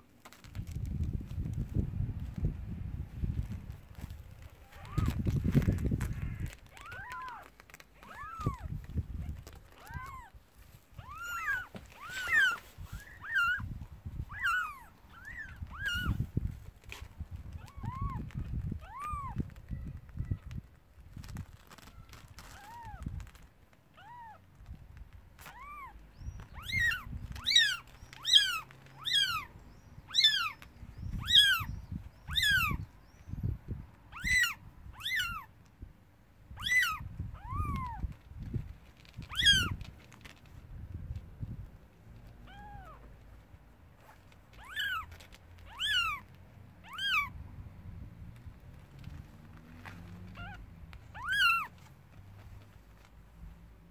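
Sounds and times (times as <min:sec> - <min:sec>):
kittens mewing: 0:04.6 - 0:16.3, 0:17.0 - 0:19.6, 0:21.7 - 0:24.4, 0:25.4 - 0:32.8, 0:34.1 - 0:35.5, 0:36.6 - 0:38.2, 0:39.0 - 0:40.4, 0:42.4 - 0:43.1, 0:44.0 - 0:47.4, 0:50.3 - 0:51.9.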